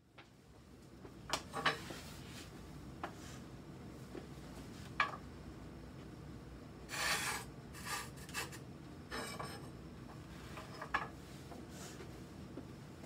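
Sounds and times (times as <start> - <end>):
plates scraping in a kiln: 6.9 - 9.7.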